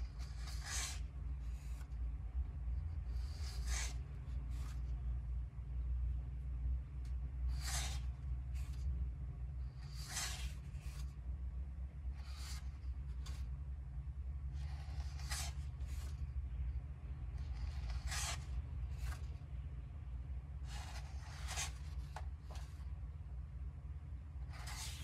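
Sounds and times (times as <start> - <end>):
book pages turning: 0.0 - 2.0, 3.0 - 5.1, 7.4 - 8.9, 9.6 - 11.2, 12.1 - 13.6, 14.5 - 16.7, 17.3 - 19.6, 20.6 - 23.0, 24.4 - 25.0
low hum: 0.0 - 25.0
page settling brush: 17.5 - 19.4, 20.7 - 22.8.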